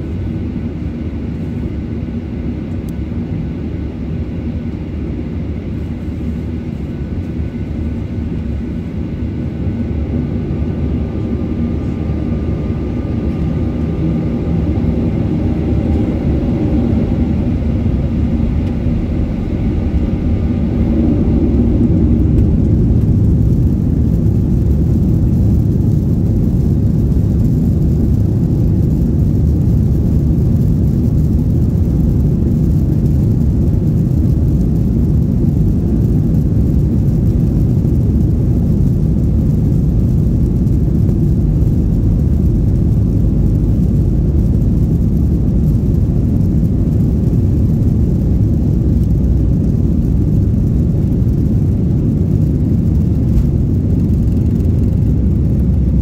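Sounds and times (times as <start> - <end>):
aircraft engine noise: 0.0 - 56.0
wheels rolling on runway: 15.8 - 56.0.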